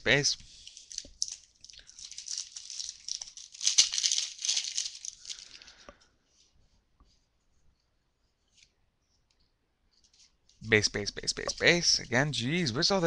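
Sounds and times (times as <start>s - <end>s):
cards and packaging crinkling: 0.5s - 5.9s.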